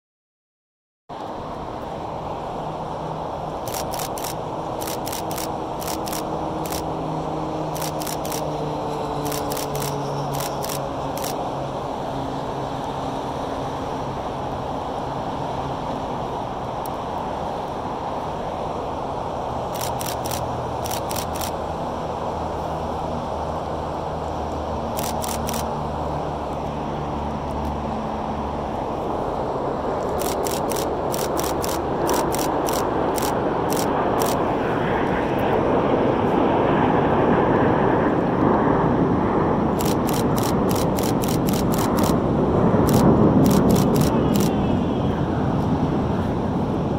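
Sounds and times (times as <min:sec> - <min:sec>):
highway traffic: 0:01.1 - 0:46.9
jet rumble: 0:01.2 - 0:46.9
camera shutter clicks: 0:03.7 - 0:06.8, 0:07.8 - 0:08.5, 0:09.2 - 0:11.4, 0:19.7 - 0:21.6, 0:25.0 - 0:25.7, 0:30.0 - 0:34.4, 0:39.8 - 0:42.2, 0:42.9 - 0:44.6.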